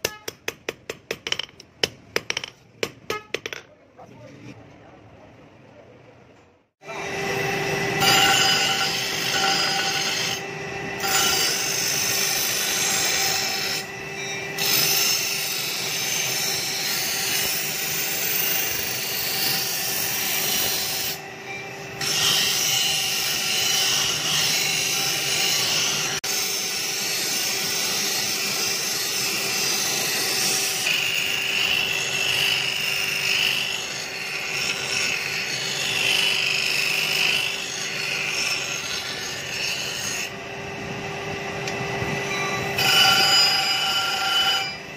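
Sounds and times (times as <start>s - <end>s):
steel grinding on stone: 7.8s - 40.4s, 41.7s - 44.9s.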